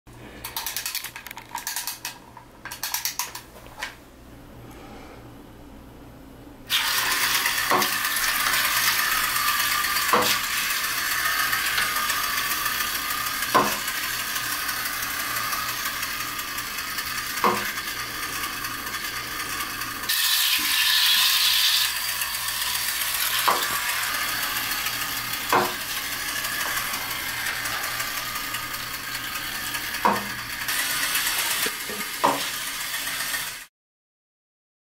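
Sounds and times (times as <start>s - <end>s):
clockwork motor whirring: 6.7s - 33.7s.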